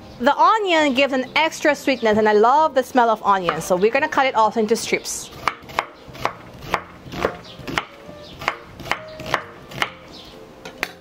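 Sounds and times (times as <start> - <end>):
knife slicing onion on cutting board: 5.4 - 10.0.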